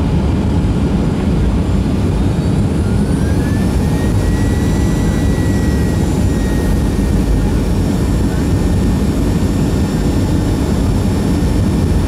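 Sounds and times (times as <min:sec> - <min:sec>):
jet engine cabin rumble: 0:00.0 - 0:12.0
faint thin whine: 0:02.8 - 0:10.7.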